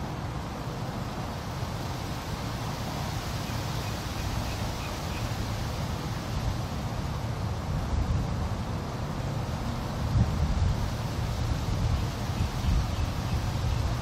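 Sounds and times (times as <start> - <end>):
steady background hiss: 0.0 - 14.0
wind buffeting microphone: 3.0 - 14.0.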